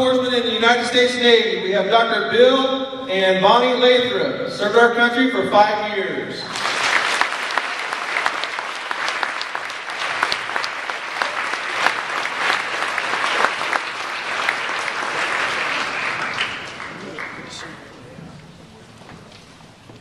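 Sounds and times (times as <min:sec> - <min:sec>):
crowd applauding: 0:06.5 - 0:18.2.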